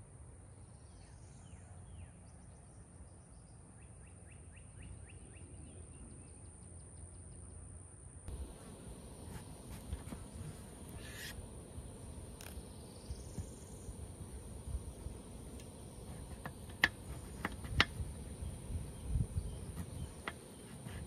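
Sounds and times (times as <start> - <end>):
high-pitched insect buzz: 8.3 - 21.0.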